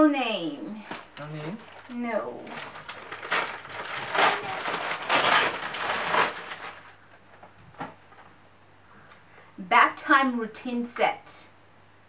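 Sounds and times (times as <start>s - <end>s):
wrapping paper crinkling: 1.2s - 7.0s.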